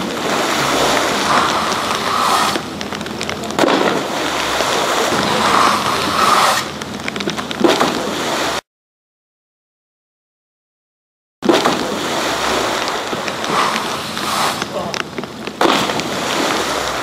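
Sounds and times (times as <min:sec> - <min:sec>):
heavy splash into water: 0:00.0 - 0:02.8, 0:11.4 - 0:15.0, 0:15.6 - 0:17.0
rushing hiss of churned water: 0:00.0 - 0:06.9, 0:07.8 - 0:08.6, 0:11.5 - 0:17.0.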